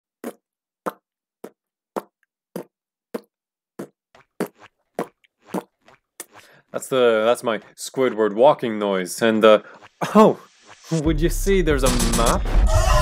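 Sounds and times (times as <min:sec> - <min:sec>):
cartoon footstep pops: 0:00.2 - 0:06.4.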